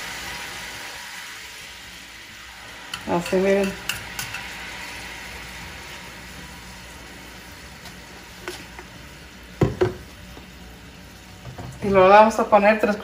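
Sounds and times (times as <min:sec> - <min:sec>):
syrup sizzling in saucepan: 0:00.0 - 0:13.0
spoon knocking against pan: 0:09.6 - 0:10.0.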